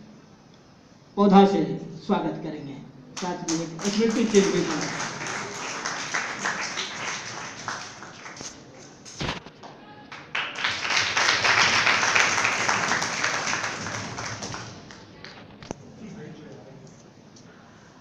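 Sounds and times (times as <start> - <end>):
audience clapping: 3.2 - 15.5.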